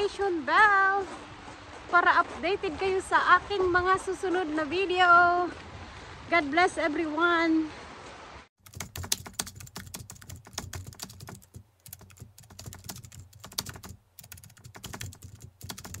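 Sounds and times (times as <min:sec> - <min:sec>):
rapid keyboard clicking: 0:08.6 - 0:16.0.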